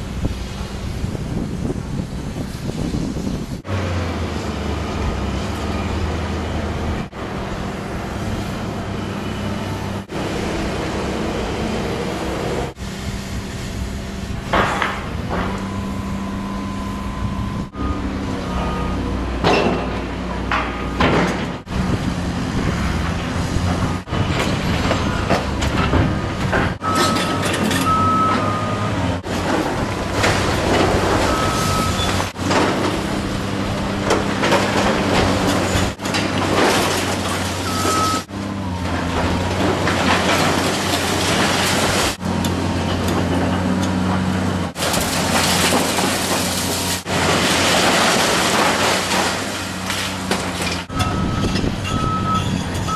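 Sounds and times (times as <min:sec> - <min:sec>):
excavator diesel engine running: 0:00.0 - 0:52.9
debris crunching and scraping: 0:29.2 - 0:52.9.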